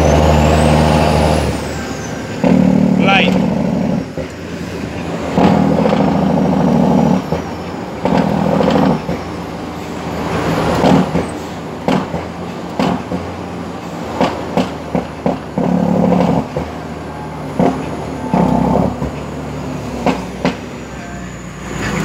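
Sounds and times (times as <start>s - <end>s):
diesel truck engine: 0.0s - 22.0s
sharp knocks and clicks: 5.4s - 9.3s, 10.7s - 13.3s, 14.2s - 16.8s, 20.0s - 20.6s.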